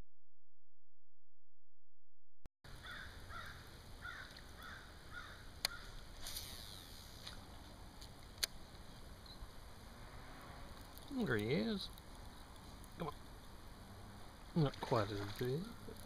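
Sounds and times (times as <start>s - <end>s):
bird calling: 2.8s - 6.0s.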